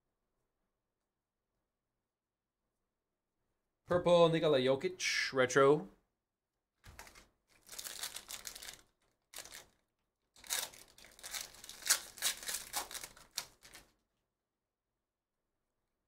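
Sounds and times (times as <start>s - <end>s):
foil wrapper crinkling and tearing: 6.9s - 9.8s, 10.4s - 13.9s.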